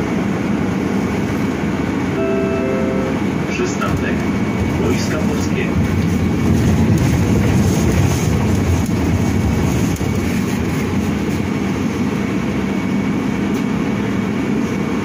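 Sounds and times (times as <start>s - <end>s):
faint high steady tone: 2.2s - 3.2s.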